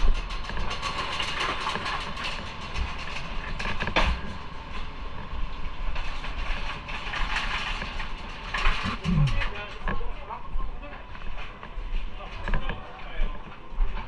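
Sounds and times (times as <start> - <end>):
motorcycle engine and road rumble: 0.0 - 10.3.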